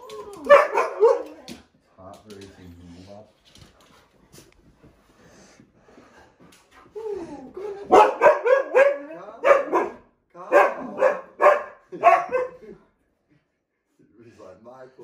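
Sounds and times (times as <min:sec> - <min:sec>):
dogs barking: 0:00.4 - 0:01.4, 0:07.8 - 0:12.6.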